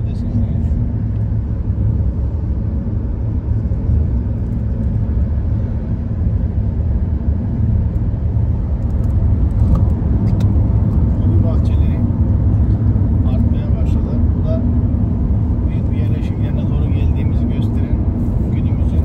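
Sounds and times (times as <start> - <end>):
car cabin road rumble: 0.0 - 19.0.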